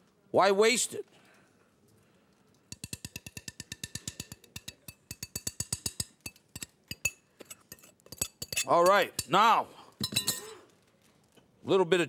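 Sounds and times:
spoon clinking against glass bowl: 0:02.7 - 0:09.4, 0:10.0 - 0:10.5.

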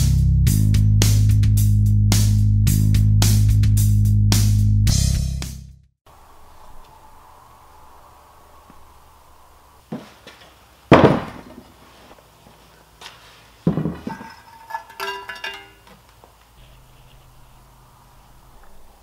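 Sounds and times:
heavy metal parts thunking on workbench: 0:10.9 - 0:11.8, 0:13.6 - 0:15.9
metal clinks with ringing: 0:14.1 - 0:15.9.

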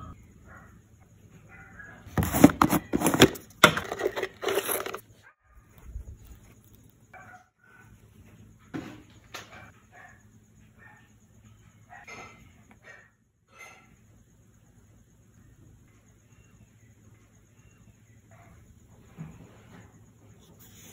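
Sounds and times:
plastic jar rattling and clicking: 0:02.2 - 0:05.0.

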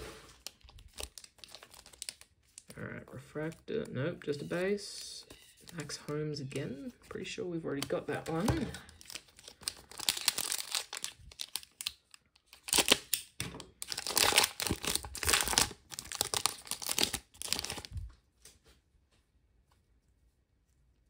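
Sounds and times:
foil wrapper crinkling and tearing: 0:00.0 - 0:03.6, 0:07.8 - 0:18.1.

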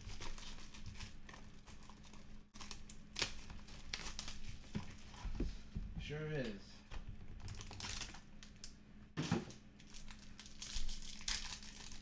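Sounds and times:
plastic wrapping crinkling and tearing: 0:00.0 - 0:05.1, 0:07.4 - 0:08.7, 0:09.8 - 0:12.0.

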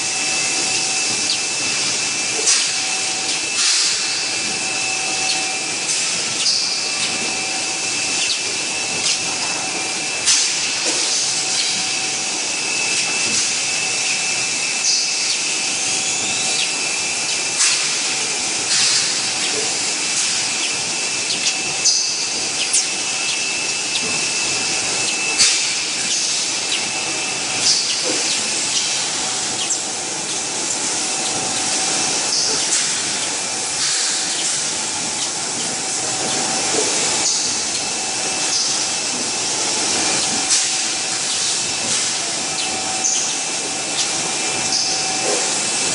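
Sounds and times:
constant high whine: 0:00.0 - 0:45.9
machinery hiss and hum: 0:00.0 - 0:45.9
sharp air hisses: 0:01.5 - 0:07.9.

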